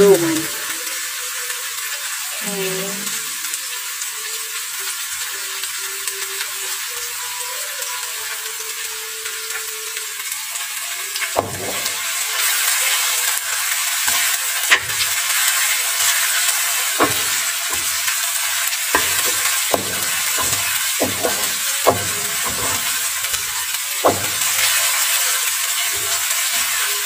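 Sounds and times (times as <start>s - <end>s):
food sizzling in oil: 0.0s - 27.0s
wooden spatula scraping pan: 19.0s - 24.8s.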